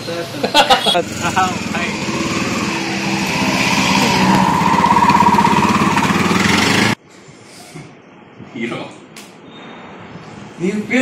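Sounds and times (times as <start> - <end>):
auto-rickshaw engine running: 0.8 - 7.0.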